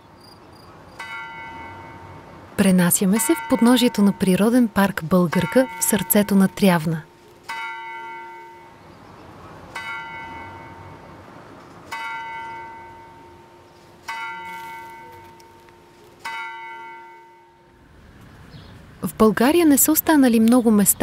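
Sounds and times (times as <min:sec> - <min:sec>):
clock tower bell striking: 0:01.0 - 0:02.2, 0:03.1 - 0:04.3, 0:05.3 - 0:06.6, 0:07.5 - 0:08.8, 0:09.7 - 0:11.0, 0:11.9 - 0:17.6.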